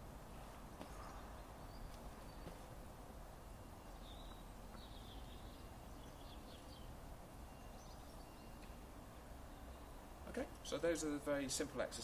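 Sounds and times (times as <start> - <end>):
bird twittering: 3.5 - 8.8.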